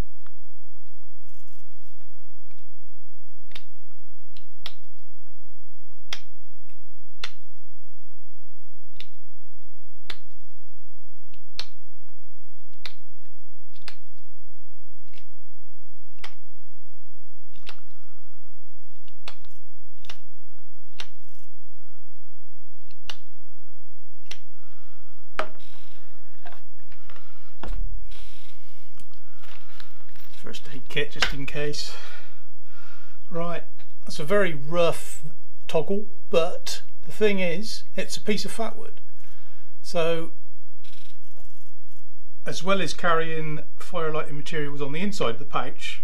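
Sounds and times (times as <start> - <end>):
steady low hum: 0.0 - 46.0
knife carving wood: 18.9 - 20.2.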